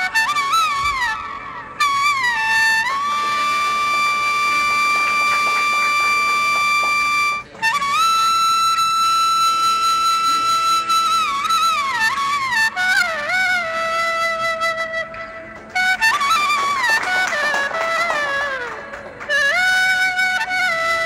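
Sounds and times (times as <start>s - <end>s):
wind instrument long notes: 0.0s - 21.0s.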